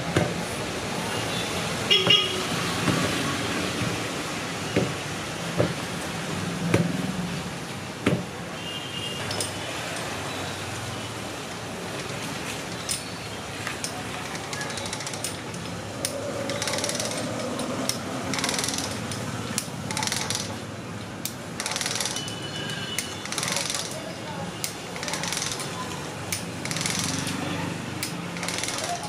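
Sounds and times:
street noise hum: 0.0 - 29.0
sharp knocks: 4.7 - 5.8, 6.7 - 7.0, 8.0 - 8.3.

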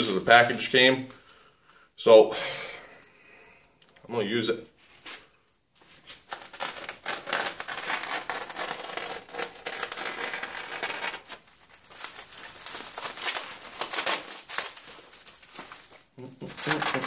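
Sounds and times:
bubble wrap crinkling and snapping: 5.0 - 17.0.

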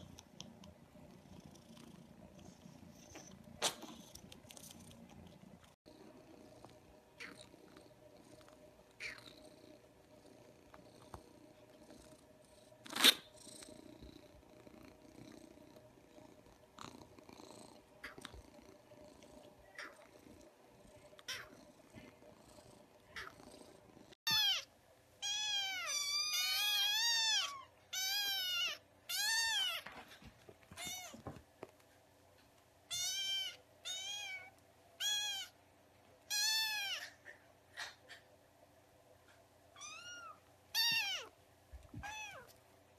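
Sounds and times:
kitten meowing: 24.3 - 24.6, 39.8 - 41.3, 42.0 - 42.5.

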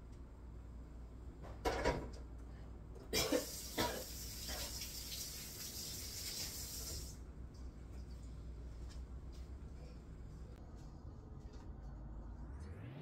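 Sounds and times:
kitchen tap running: 3.2 - 7.2.

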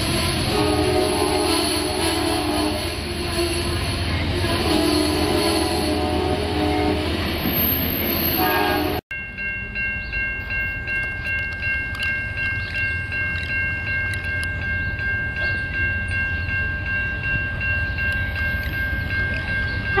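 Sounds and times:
diesel locomotive rumble: 0.0 - 20.0
railroad bell ringing: 0.0 - 20.0.

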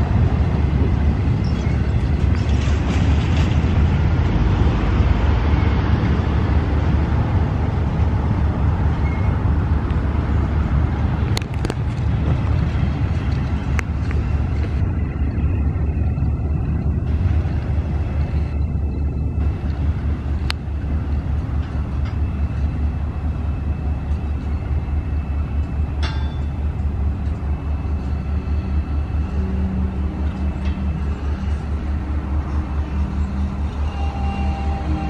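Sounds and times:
freight train rumbling: 0.0 - 35.0
steady engine hum: 0.0 - 35.0
sharp metallic clanks: 26.0 - 26.6.

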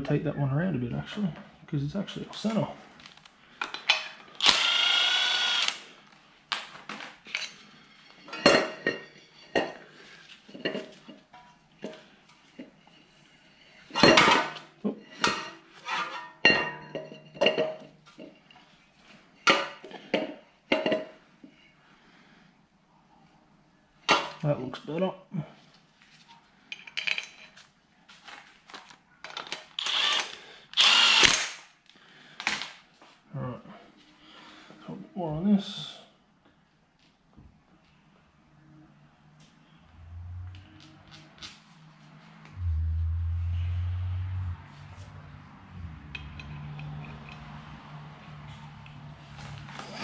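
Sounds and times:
power drill running: 4.4 - 5.8, 29.8 - 31.4.

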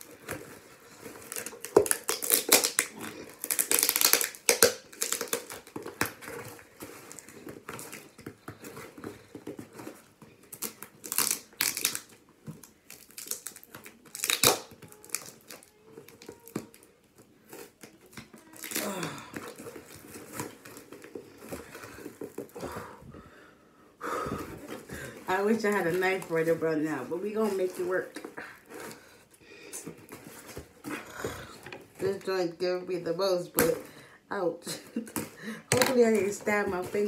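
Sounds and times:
packing tape tearing: 0.0 - 22.6
cardboard box rustling: 5.5 - 10.6, 24.2 - 32.3, 35.8 - 37.0.

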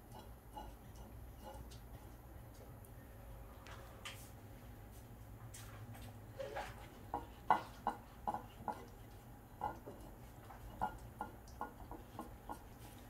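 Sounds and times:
dog licking food tray: 6.6 - 13.0.

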